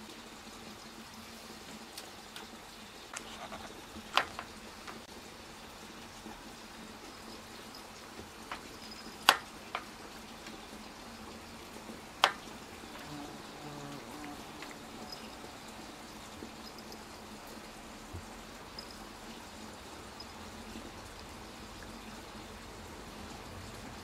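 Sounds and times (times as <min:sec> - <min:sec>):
cat claws clicking on window screen: 0:08.5 - 0:09.9.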